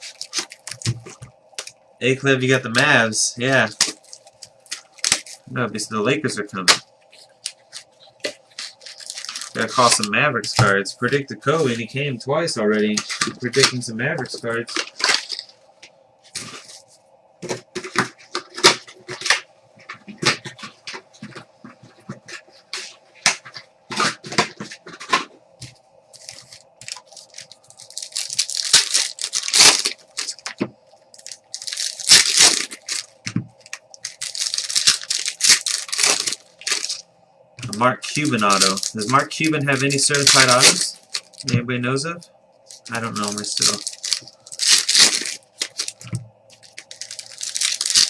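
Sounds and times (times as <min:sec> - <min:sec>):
wrapper tearing and crinkling: 0:00.0 - 0:01.7, 0:03.6 - 0:05.5, 0:07.2 - 0:10.7, 0:12.9 - 0:15.5, 0:16.3 - 0:16.8, 0:26.2 - 0:37.0, 0:37.7 - 0:41.5, 0:42.7 - 0:48.0.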